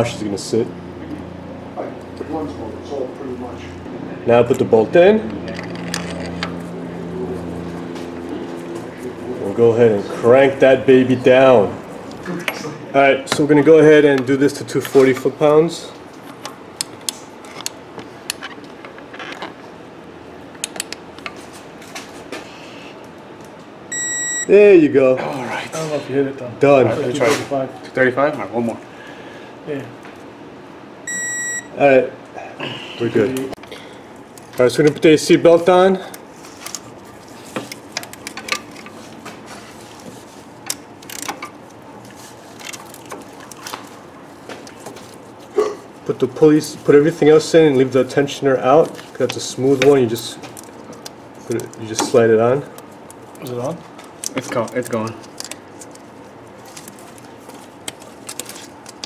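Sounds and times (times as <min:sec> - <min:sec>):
torque wrench clicks and creaks: 0:40.6 - 0:41.5.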